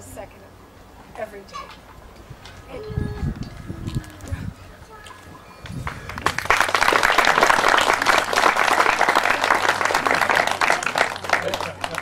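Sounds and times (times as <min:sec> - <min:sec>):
crowd applause: 0:05.6 - 0:12.0.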